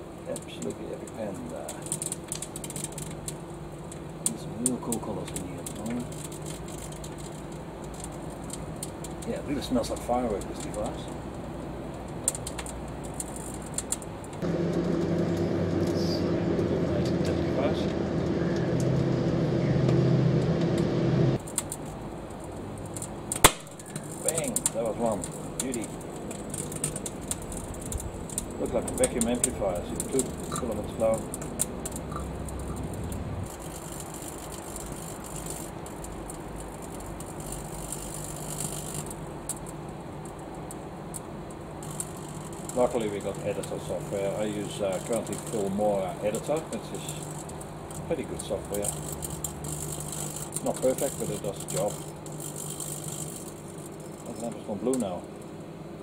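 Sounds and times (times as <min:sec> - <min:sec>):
sharp crackling clicks from arcing: 0:00.2 - 0:15.4, 0:21.4 - 0:55.6
microwave oven humming: 0:14.2 - 0:21.4.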